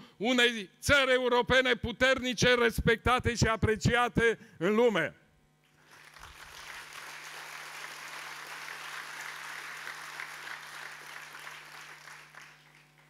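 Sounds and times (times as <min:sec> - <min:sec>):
large audience applauding: 0:05.8 - 0:13.0.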